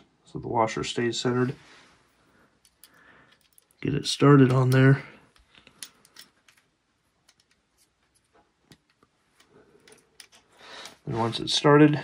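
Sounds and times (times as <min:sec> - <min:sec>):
faint clicks of small metal parts: 0:02.3 - 0:11.1.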